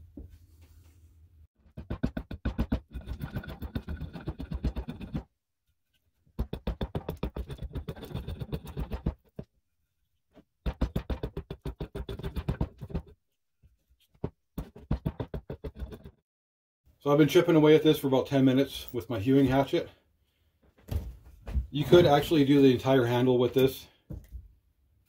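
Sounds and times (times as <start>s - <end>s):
hatchet chopping wood: 1.8s - 5.2s, 6.4s - 9.4s, 10.6s - 13.0s.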